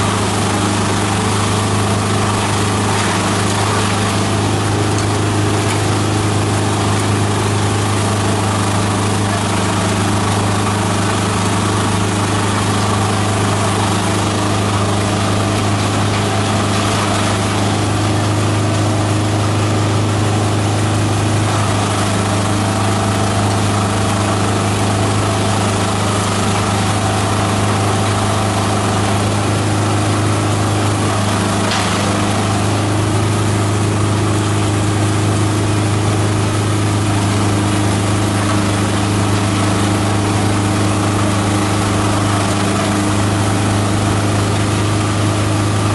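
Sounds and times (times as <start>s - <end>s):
shredder machine droning: 0.0s - 45.9s
branches being shredded: 0.1s - 20.2s, 21.2s - 34.9s.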